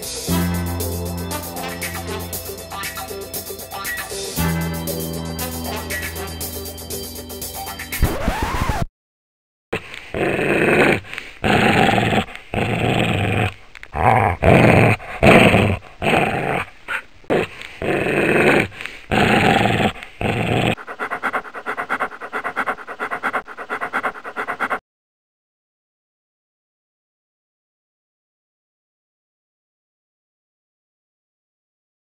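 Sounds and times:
dog growling: 10.1 - 24.8.

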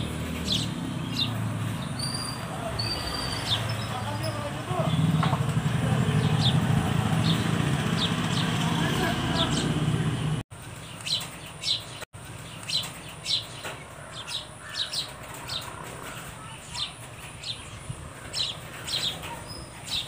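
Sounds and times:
sparrows chirping: 0.0 - 20.0
loud noise cutting off: 4.6 - 10.4.

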